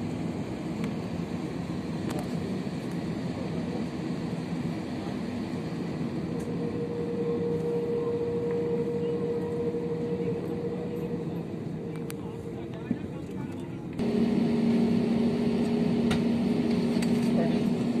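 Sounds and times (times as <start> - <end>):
mid-pitched hum: 0.0 - 18.0.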